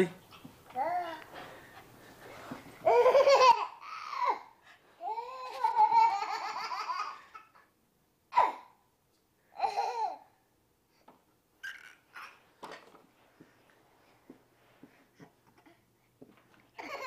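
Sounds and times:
baby laughing and squealing: 2.8s - 4.4s, 11.6s - 12.4s.

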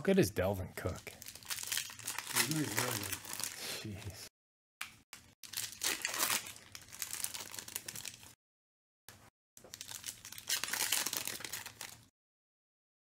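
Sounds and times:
foil wrapper tearing and crinkling: 1.2s - 3.6s, 5.4s - 8.3s, 9.7s - 12.1s.

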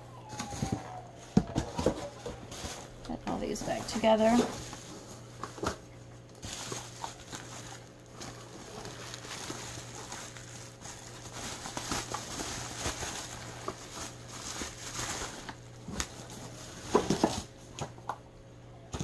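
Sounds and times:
bubble wrap crinkling: 0.2s - 18.0s
items knocking in cardboard box: 0.3s - 4.8s, 16.8s - 18.0s.

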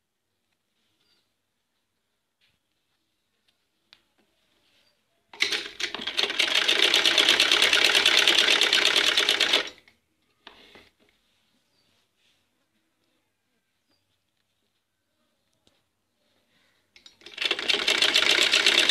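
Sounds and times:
sewing machine stitching: 5.4s - 9.8s, 17.2s - 18.9s.

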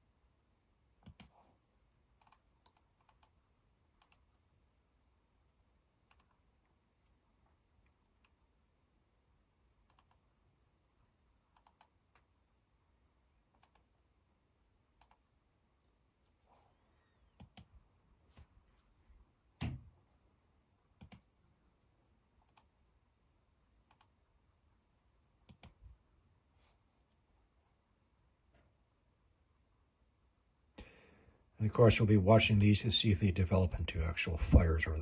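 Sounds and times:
mouse and keyboard clicks: 1.0s - 1.4s, 2.2s - 3.4s, 4.0s - 4.3s, 6.0s - 6.4s, 9.8s - 10.3s, 11.5s - 12.3s, 13.5s - 13.9s, 15.0s - 15.2s, 17.4s - 17.7s, 21.0s - 21.3s, 22.4s - 22.7s, 23.8s - 24.2s, 25.4s - 25.8s.

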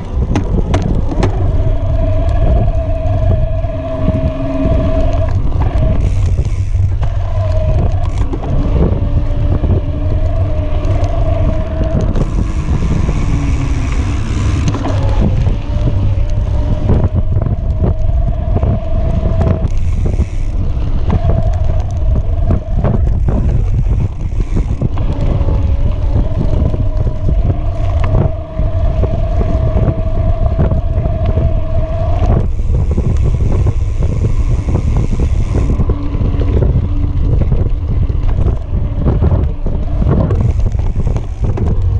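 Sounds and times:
bike rattling over dirt: 0.0s - 41.9s
electric bike motor whining: 0.0s - 41.9s
wind buffeting microphone: 0.0s - 41.9s.

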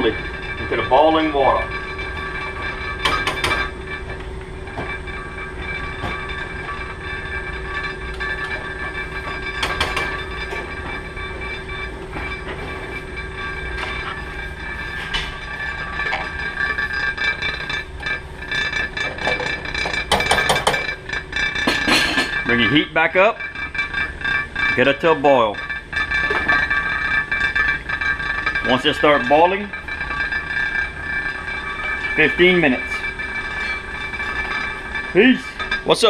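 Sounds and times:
metal spoon clinking on pot: 0.0s - 36.0s
steady hum and rushing noise: 0.0s - 36.0s.

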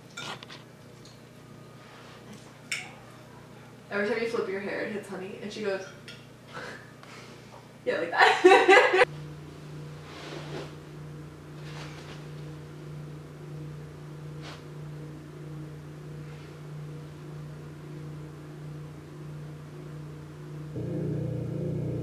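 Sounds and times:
low hum: 9.0s - 22.0s.

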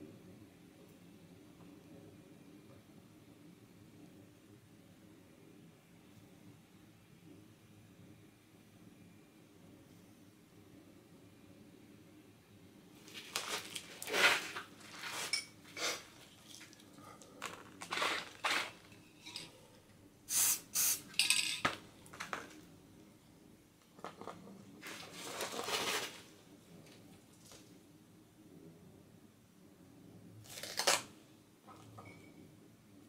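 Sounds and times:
short scraping noises: 13.4s - 16.2s, 17.8s - 18.9s
spray-paint cans clinking: 17.8s - 19.5s, 20.3s - 21.8s.

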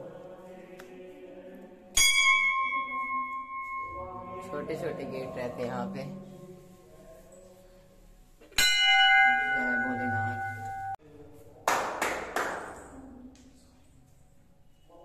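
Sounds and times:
brass bell ringing: 2.0s - 4.7s, 8.6s - 11.0s.

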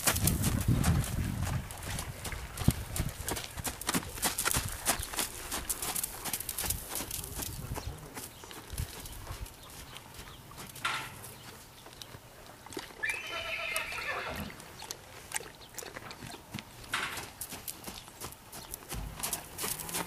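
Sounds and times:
hoof thuds on sandy ground: 0.0s - 11.9s, 16.5s - 20.0s
horse whinnying: 13.0s - 14.6s.

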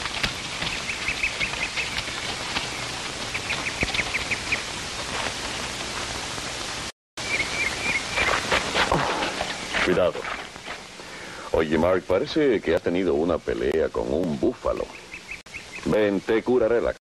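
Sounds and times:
steady hiss: 0.0s - 17.0s
rapid bird chirps: 0.3s - 4.8s, 7.2s - 8.5s, 14.8s - 16.4s.

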